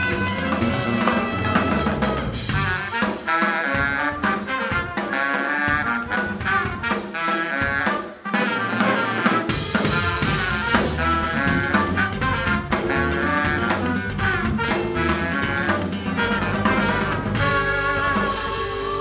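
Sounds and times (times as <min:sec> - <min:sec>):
bass line: 0:00.0 - 0:19.0
drum kit beat: 0:00.0 - 0:19.0
horns: 0:00.0 - 0:19.0
jazz-rock band playing live: 0:00.0 - 0:19.0
electric violin: 0:09.5 - 0:19.0.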